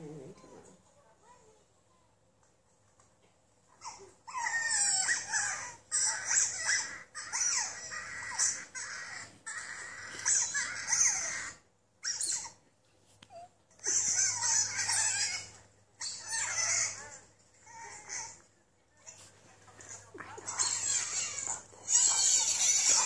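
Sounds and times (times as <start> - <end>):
otter squeaks and chirps: 3.8 - 12.6, 13.3 - 18.4, 20.4 - 23.0.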